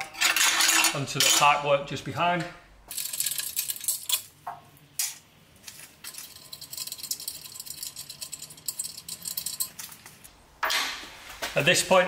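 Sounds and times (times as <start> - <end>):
metal clinking and rattling: 2.9 - 4.4, 5.0 - 11.0.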